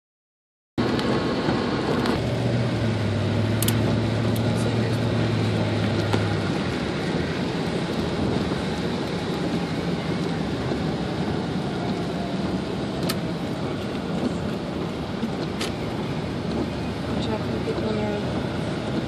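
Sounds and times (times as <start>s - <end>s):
tyres hissing on wet road: 0.8s - 19.0s
sharp clicks: 3.6s - 4.5s.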